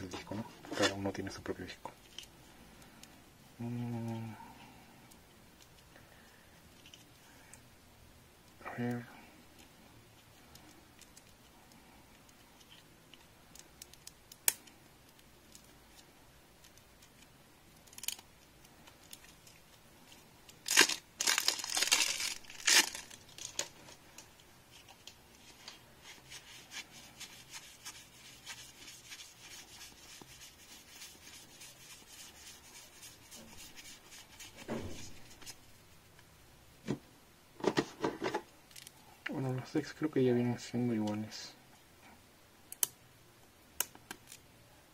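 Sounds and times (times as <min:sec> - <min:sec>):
cards clicking and rustling: 0:20.5 - 0:24.2
plastic wrap crackling: 0:20.5 - 0:33.9.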